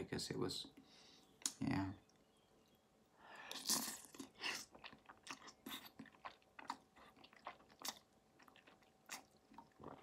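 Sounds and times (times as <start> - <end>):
person chewing wet mouth sounds: 3.4 - 10.0.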